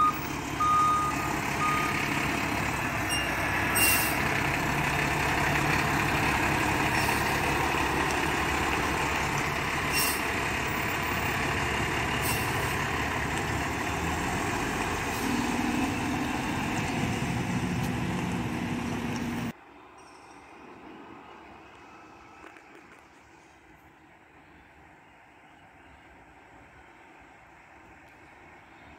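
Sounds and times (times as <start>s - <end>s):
garbage truck engine running: 0.0s - 19.5s
quiet street ambience: 0.0s - 28.9s
air brake hisses: 3.8s - 4.2s, 12.2s - 12.8s.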